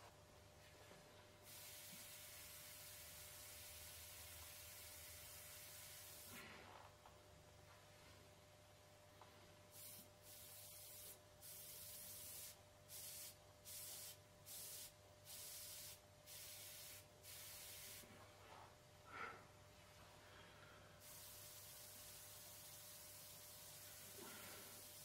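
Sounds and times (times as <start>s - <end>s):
airbrush spraying bursts: 1.4s - 6.4s, 9.7s - 18.1s, 21.0s - 25.0s.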